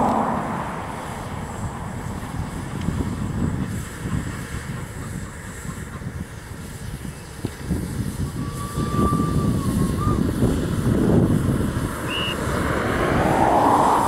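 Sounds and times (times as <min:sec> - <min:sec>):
car passing rumble: 0:00.0 - 0:05.2, 0:06.6 - 0:14.0
thin steady squeal: 0:00.9 - 0:12.5.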